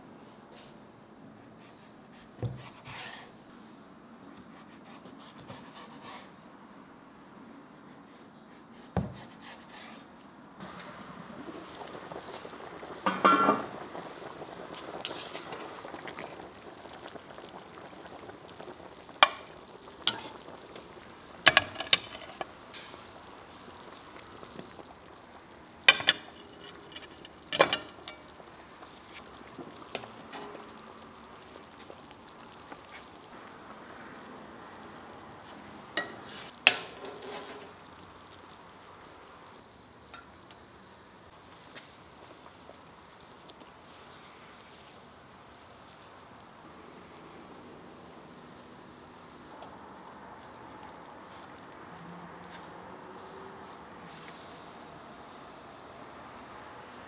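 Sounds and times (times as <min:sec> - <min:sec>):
broth bubbling: 0:10.6 - 0:52.0.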